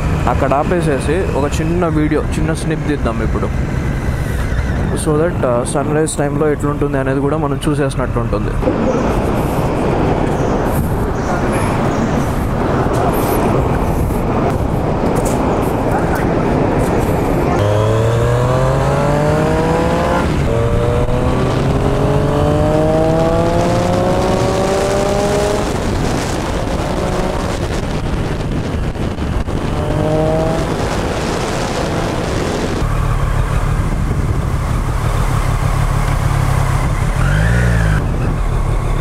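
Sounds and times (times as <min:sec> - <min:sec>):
wind and road noise: 0:00.0 - 0:39.0
motorcycle engine accelerating: 0:08.4 - 0:39.0.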